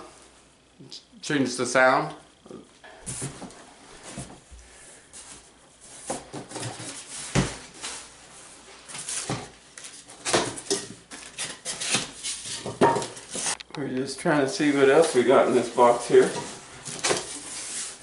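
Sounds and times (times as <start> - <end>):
cardboard and plastic rustling: 5.2 - 13.6, 14.4 - 18.0.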